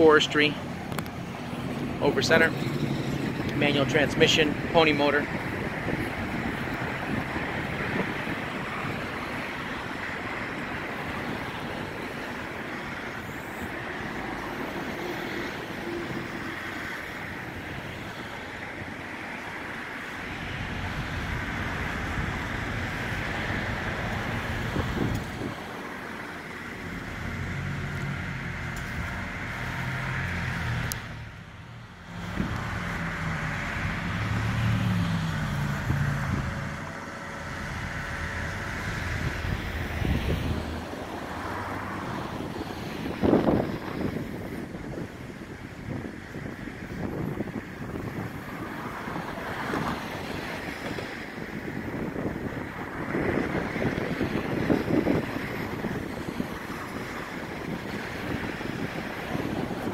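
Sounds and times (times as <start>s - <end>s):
truck engine running: 20.6s - 34.4s, 35.3s - 41.2s.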